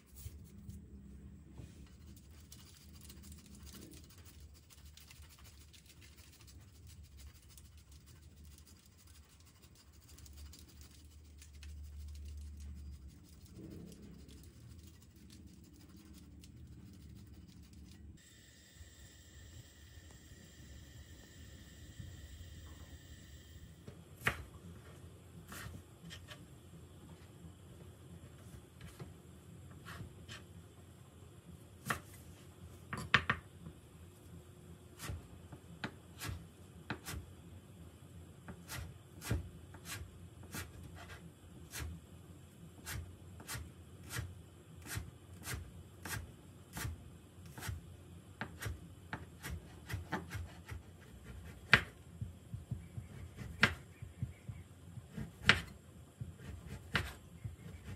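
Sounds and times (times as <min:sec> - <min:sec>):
knife chopping on wooden board: 0:48.4 - 0:52.0, 0:52.7 - 0:54.3, 0:55.0 - 0:57.9.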